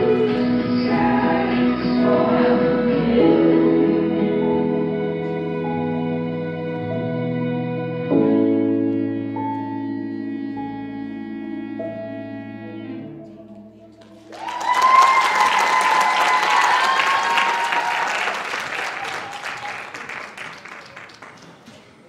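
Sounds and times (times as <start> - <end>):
soft piano music: 0.0 - 14.3
audience applause: 14.1 - 22.0
audience cheering: 14.2 - 21.6.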